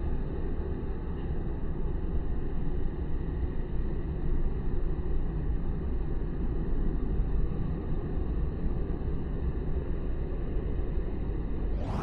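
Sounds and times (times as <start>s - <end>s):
low outdoor rumble: 11.4s - 12.0s.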